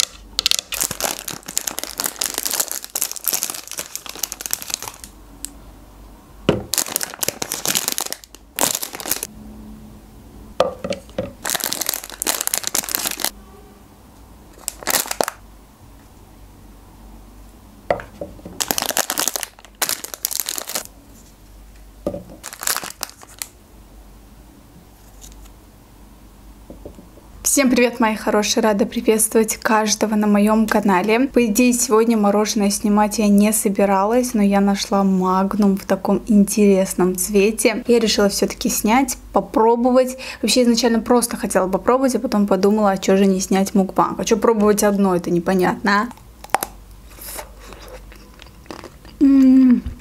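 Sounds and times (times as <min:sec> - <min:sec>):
wrappers crinkling and tearing: 0:00.0 - 0:05.1, 0:06.7 - 0:09.3, 0:11.4 - 0:13.4, 0:14.5 - 0:15.4, 0:18.6 - 0:20.9, 0:22.4 - 0:23.6.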